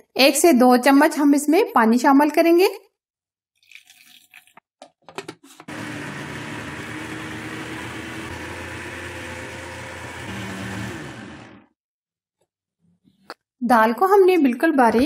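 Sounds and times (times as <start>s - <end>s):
electric blender grinding: 5.6s - 11.8s.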